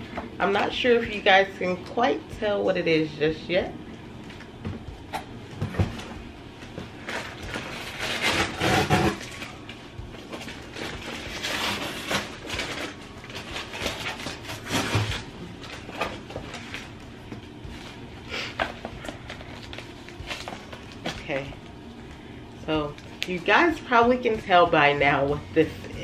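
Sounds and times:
paper and plastic wrap rustling: 5.8 - 21.8
scraping and knocking on cardboard box: 7.4 - 9.3.

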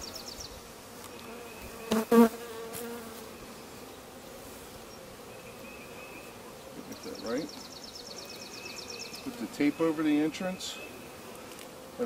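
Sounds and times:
bees buzzing: 0.0 - 12.0.

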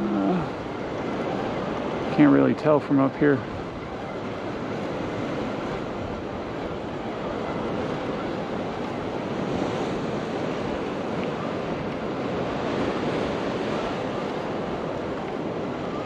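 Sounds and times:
sea waves washing: 0.0 - 16.0
wind buffeting microphone: 0.0 - 16.0.

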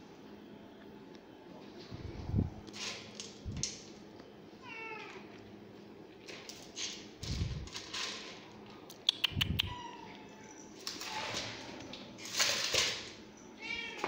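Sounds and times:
dry kibble rattling in a metal bowl: 6.3 - 8.7, 10.8 - 13.2
cat meowing: 9.4 - 10.5, 13.6 - 14.0.

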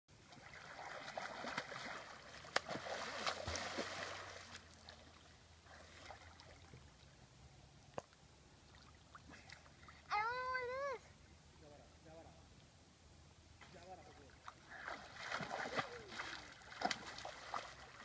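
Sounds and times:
person swimming splashing: 0.2 - 6.7, 14.5 - 18.0
water lapping: 0.2 - 7.3, 8.0 - 10.5, 13.7 - 18.0.

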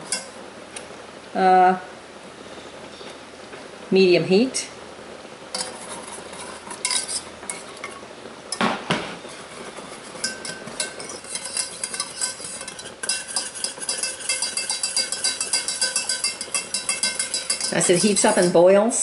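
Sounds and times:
whisk scraping in a metal saucepan: 0.0 - 0.3, 5.6 - 8.0, 9.3 - 18.7.

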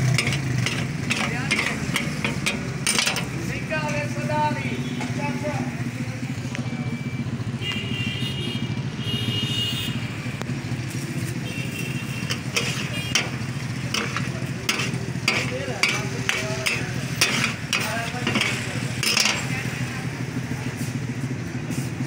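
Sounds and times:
metal spatulas clanking on griddle: 0.0 - 3.5, 12.2 - 19.7.

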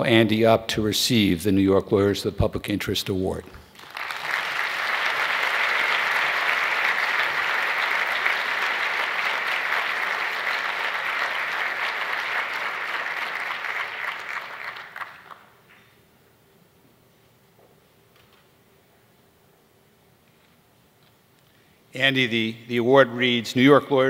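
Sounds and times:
audience applauding: 3.7 - 15.6.

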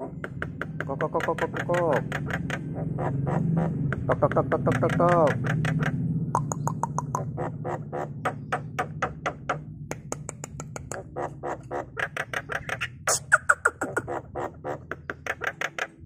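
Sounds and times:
bird clicking chattering notes: 0.0 - 16.0.

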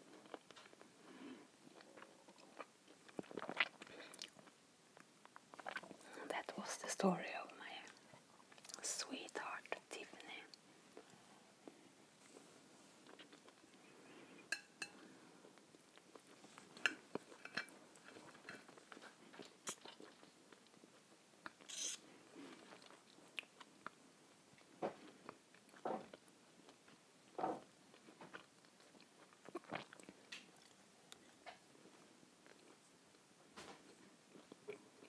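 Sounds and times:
chewing and mouth sounds: 1.7 - 6.1, 13.0 - 13.8, 15.6 - 24.0, 27.9 - 31.6.

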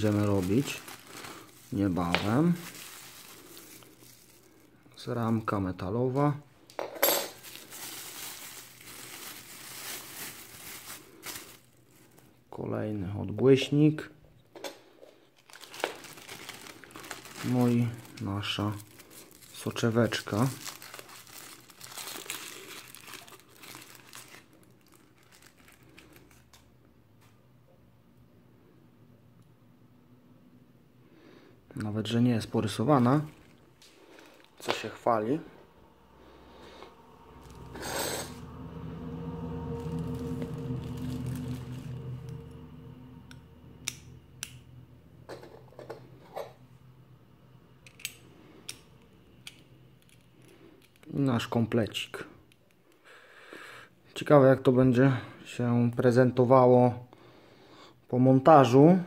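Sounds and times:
plastic wrapping crinkling: 0.0 - 5.4, 7.3 - 12.4, 15.4 - 26.6, 32.7 - 35.0.

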